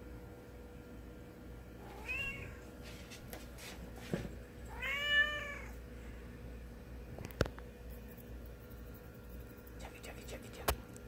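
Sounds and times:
cat meowing: 1.8 - 2.6, 4.7 - 5.8.

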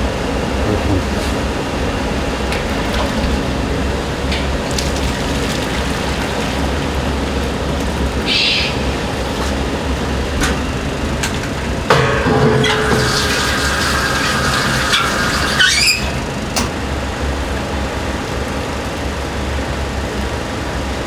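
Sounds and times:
kitchen burners and extraction rumble: 0.0 - 21.0
tap water running: 2.5 - 10.5, 11.1 - 16.3.

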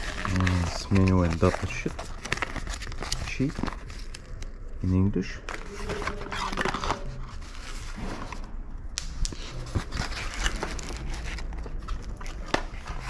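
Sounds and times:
cardboard rustling: 0.0 - 8.5, 9.3 - 13.0
plastic wrapping crinkling: 0.0 - 13.0.

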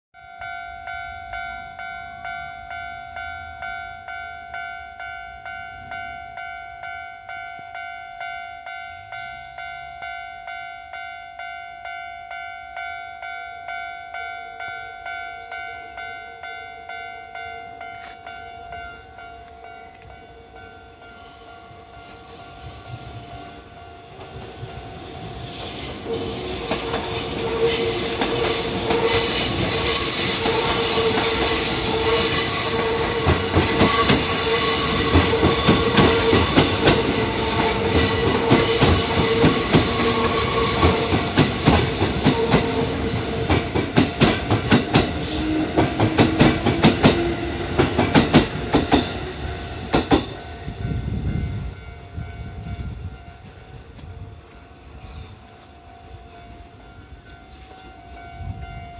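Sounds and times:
high wheel squeal: 21.1 - 23.8, 24.8 - 43.9.

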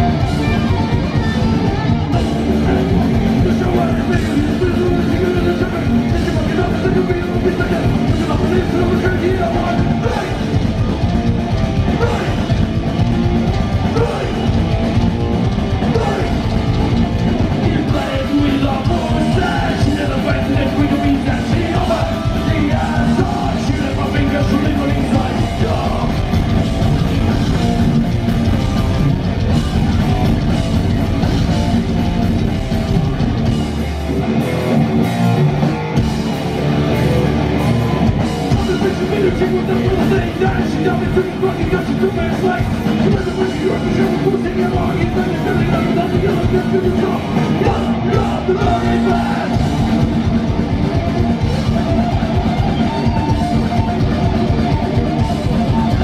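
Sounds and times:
shouted vocals: 0.0 - 10.6, 11.8 - 12.7, 13.7 - 14.7, 15.7 - 16.8, 17.5 - 26.5, 36.9 - 56.0
distorted electric guitars: 0.0 - 56.0
fast drumming: 0.0 - 56.0.

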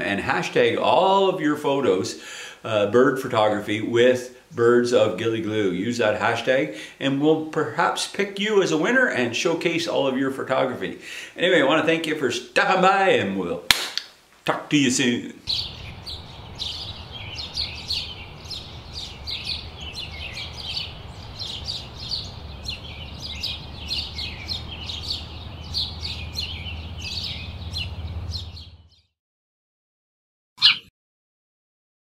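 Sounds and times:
birds twittering: 15.5 - 29.1, 30.6 - 30.9.

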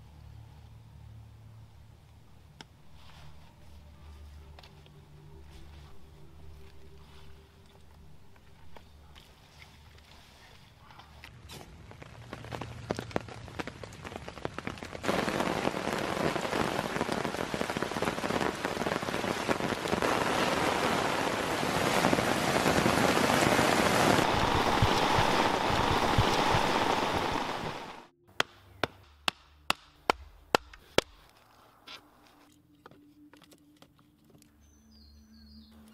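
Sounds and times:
heavy rain pouring in forest: 11.7 - 28.1.

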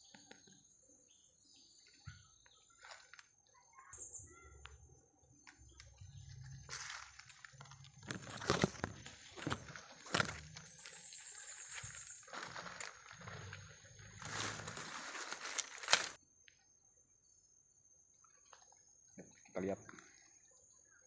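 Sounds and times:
footsteps crunching dry leaves: 2.7 - 3.3, 5.6 - 16.2.

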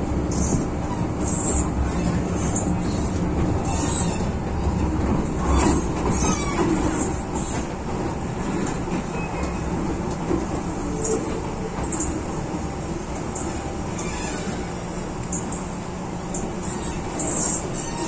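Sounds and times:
train wheels rumbling on track: 0.0 - 18.0
high-pitched wheel squeaks: 0.4 - 4.3, 5.4 - 7.6, 16.6 - 18.0.

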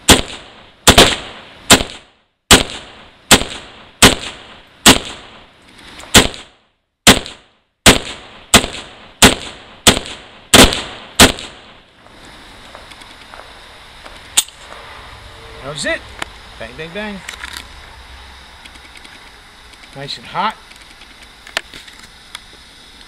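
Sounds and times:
pistol shots: 0.0 - 5.4, 6.1 - 11.8.

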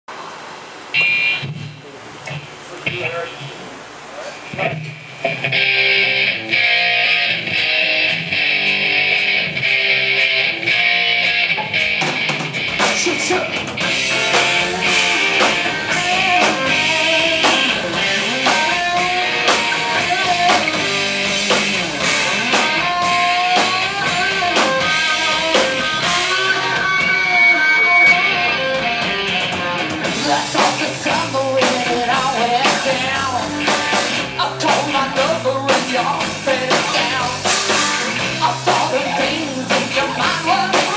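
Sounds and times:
electric guitars: 0.7 - 40.9
drum kit: 1.0 - 3.7, 4.4 - 40.9
woman singing: 30.1 - 33.8, 34.4 - 40.9.

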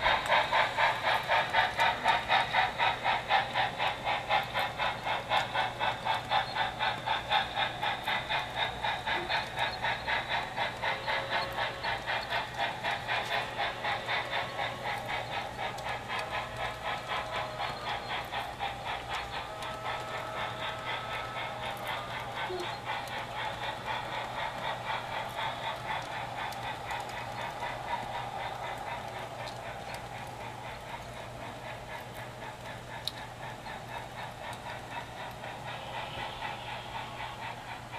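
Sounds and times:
model steam locomotive chuffing: 0.0 - 37.9
steam hiss: 0.0 - 37.9.

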